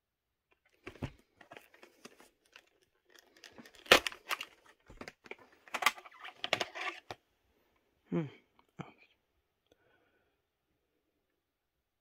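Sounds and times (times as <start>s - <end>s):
plastic case clicking and creaking: 0.5s - 7.2s.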